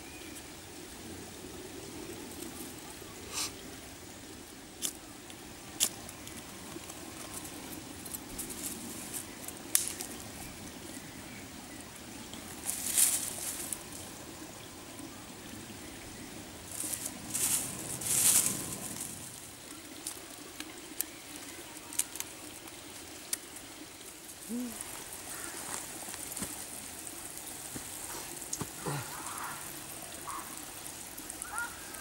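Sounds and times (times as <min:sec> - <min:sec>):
campfire crackling: 0:00.0 - 0:32.0
burning sticks snapping: 0:04.8 - 0:10.3, 0:16.8 - 0:23.6, 0:27.3 - 0:29.4.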